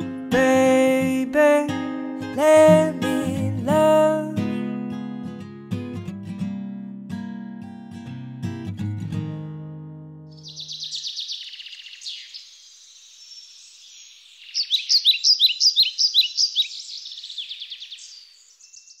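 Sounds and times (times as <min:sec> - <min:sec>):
songbirds chirping and trilling: 0:10.3 - 0:19.0.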